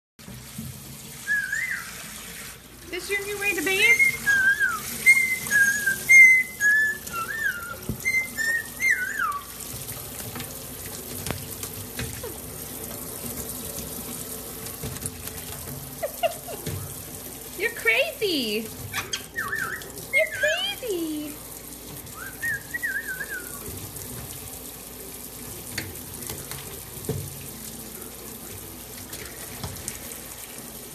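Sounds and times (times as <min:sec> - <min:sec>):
tap water running into steel sink: 0:00.2 - 0:30.9
parrot whistling: 0:01.2 - 0:02.1, 0:03.8 - 0:09.6, 0:18.9 - 0:21.2, 0:22.1 - 0:23.7.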